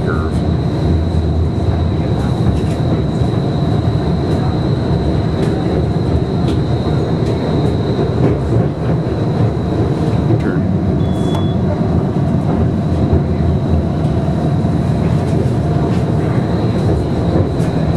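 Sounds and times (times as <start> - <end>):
streetcar rumbling on track: 0.0 - 17.9.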